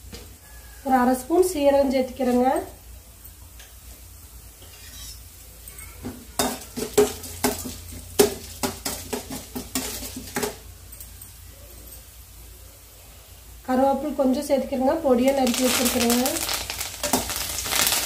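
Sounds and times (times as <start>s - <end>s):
faint sizzle of frying: 0.0s - 18.0s
spoon scraping and clinking on pan: 4.6s - 5.3s.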